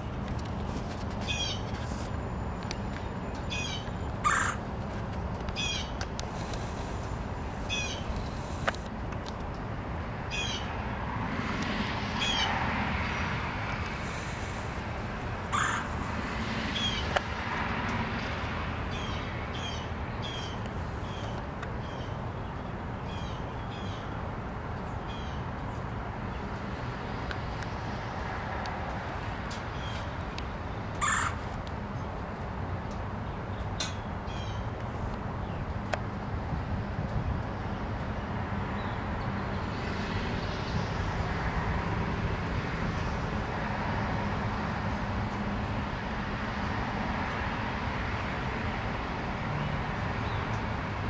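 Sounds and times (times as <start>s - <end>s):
woodpecker calling: 1.2s - 1.7s, 3.4s - 4.7s, 5.5s - 6.8s, 7.6s - 8.6s, 10.3s - 10.7s, 15.5s - 16.1s, 31.0s - 31.4s.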